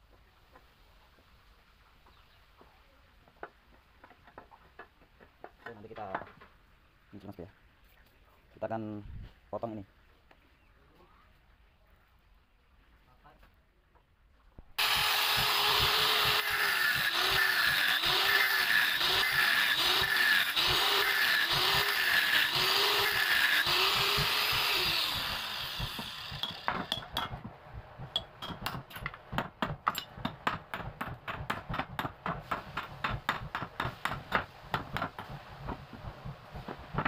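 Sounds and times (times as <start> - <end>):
angle grinder cutting metal: 14.8 - 27.1.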